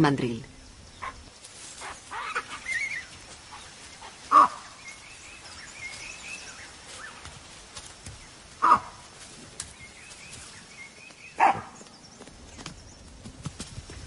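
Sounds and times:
faint bird chirping: 0.2 - 8.9, 9.6 - 13.2
baboons barking: 1.8 - 4.8, 8.6 - 9.0.

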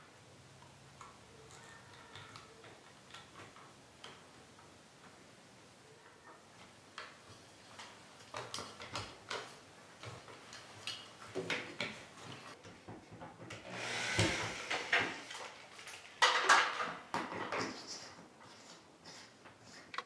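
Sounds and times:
cordless drill driving screws: 13.6 - 15.4.

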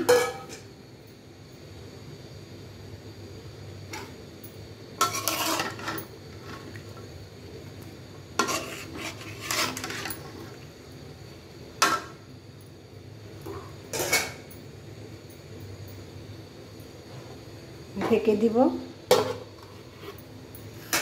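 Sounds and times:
metal spatula scraping a pan: 5.0 - 6.7, 8.3 - 10.6, 13.9 - 14.4, 19.1 - 21.0.

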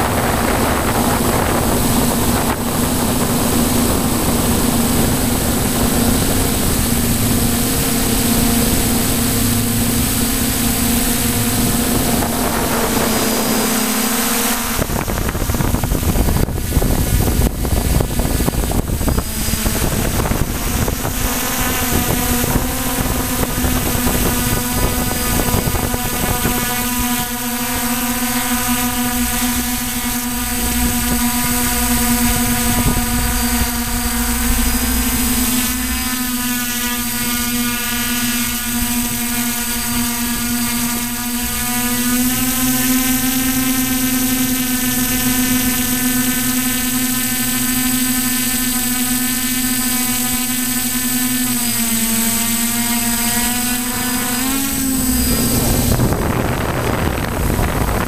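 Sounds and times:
rushing air noise: 0.0 - 26.6, 27.7 - 37.9, 53.9 - 58.0
drone motors humming: 0.0 - 58.0.

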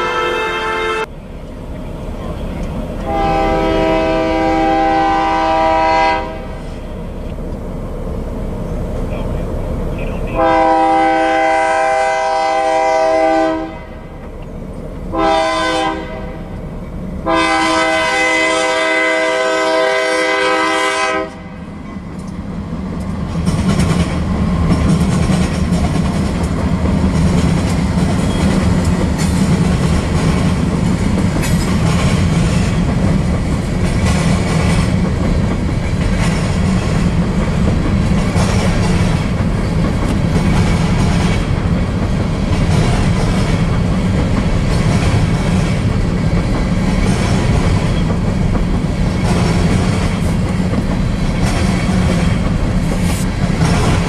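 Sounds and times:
locomotive air horn: 0.0 - 1.1, 3.0 - 6.8, 10.2 - 14.2, 15.1 - 16.5, 17.2 - 21.7
train rumble: 0.0 - 54.0
wheels clacking on rails: 1.0 - 54.0.

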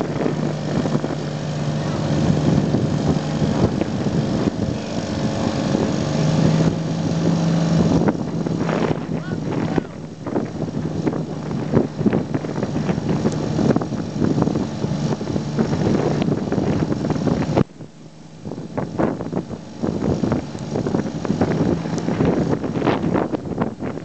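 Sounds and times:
boat engine hum: 0.0 - 24.0
wind buffeting microphone: 0.0 - 24.0.

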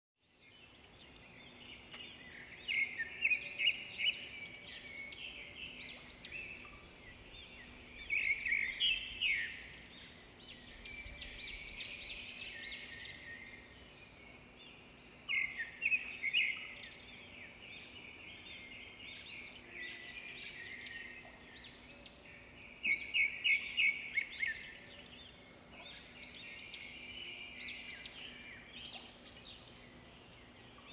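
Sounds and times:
birds twittering: 0.3 - 30.9.

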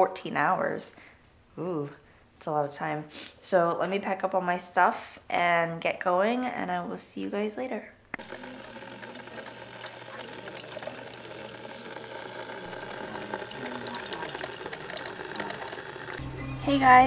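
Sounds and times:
electric kettle hissing: 8.2 - 17.0.

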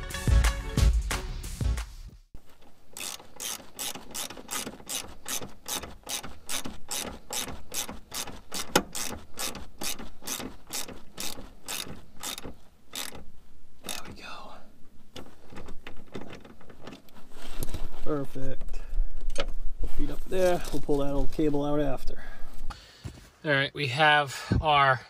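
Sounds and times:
socket ratchet clicking: 3.0 - 14.2.

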